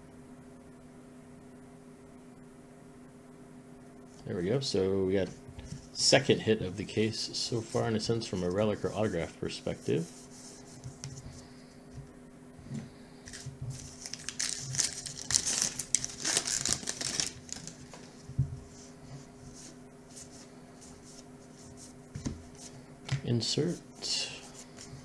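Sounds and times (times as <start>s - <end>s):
wrapper tearing and crinkling: 13.3s - 18.0s.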